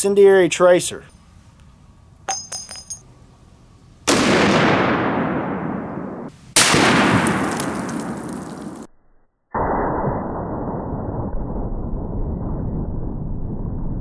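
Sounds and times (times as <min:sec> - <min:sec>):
rifle shot with long echo: 0:04.0 - 0:08.9.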